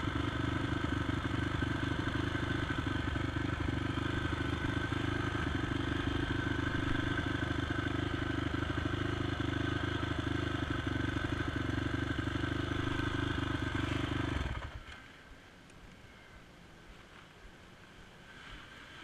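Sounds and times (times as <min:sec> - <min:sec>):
quad engine idling with clatter: 0:00.0 - 0:15.1.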